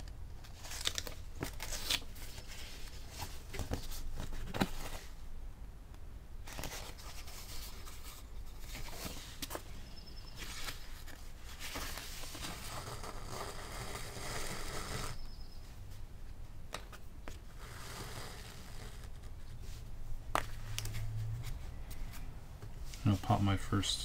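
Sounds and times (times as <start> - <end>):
paper rustling and sliding: 6.5 - 9.6, 10.4 - 15.2.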